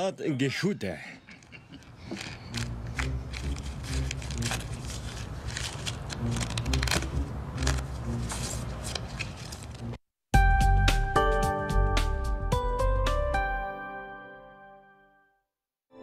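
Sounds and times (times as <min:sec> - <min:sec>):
playing cards riffle-shuffled: 0:02.0 - 0:10.0
cards dealt onto wooden table: 0:02.1 - 0:09.6
low background music: 0:02.5 - 0:13.8.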